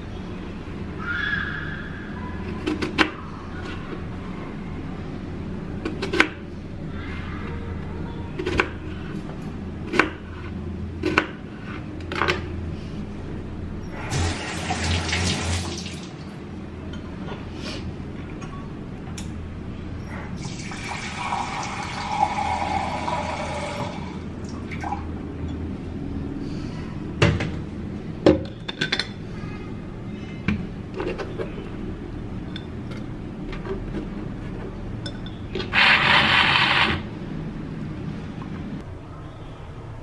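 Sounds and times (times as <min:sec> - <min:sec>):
tap water running: 0:14.1 - 0:16.3, 0:20.4 - 0:25.0
blender blending: 0:35.7 - 0:37.0.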